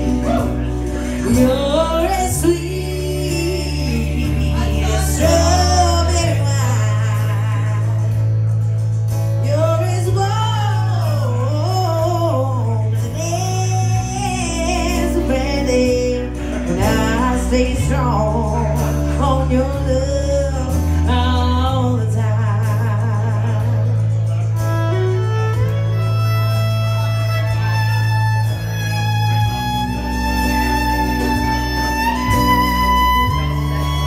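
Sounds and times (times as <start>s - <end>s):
person singing: 0.0s - 8.7s, 9.4s - 25.2s
low sustained bass notes: 0.0s - 34.0s
fiddle playing: 24.5s - 34.0s.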